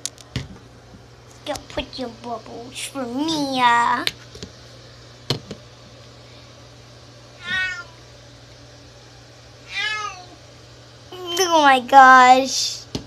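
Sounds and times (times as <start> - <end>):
cat meowing: 7.4 - 8.0, 9.7 - 10.4.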